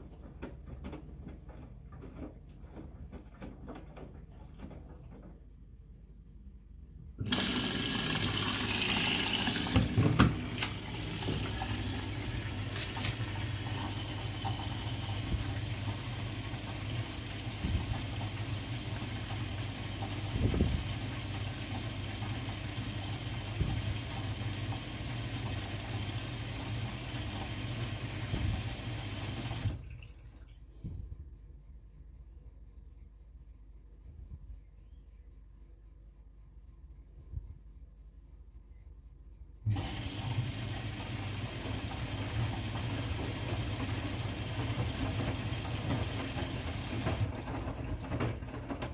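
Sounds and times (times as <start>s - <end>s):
water rushing into washing machine: 7.2s - 30.9s, 39.7s - 48.9s.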